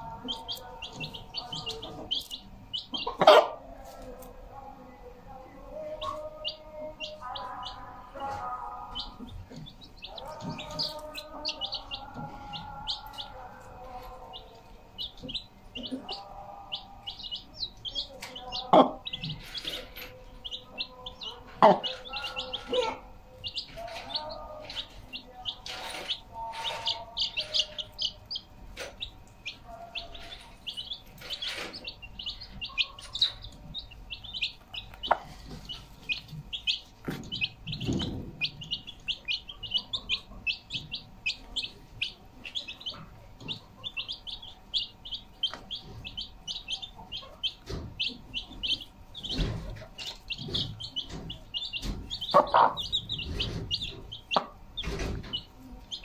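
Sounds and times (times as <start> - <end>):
hen clucking softly: 0.0 - 3.6, 25.8 - 56.0
chicks peeping: 0.0 - 56.0.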